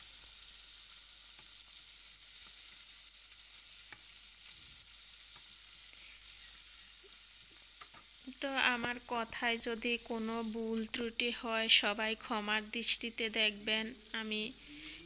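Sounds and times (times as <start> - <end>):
fish frying in hot oil: 0.0 - 15.0
wooden spatula taps and scrapes: 7.8 - 8.1.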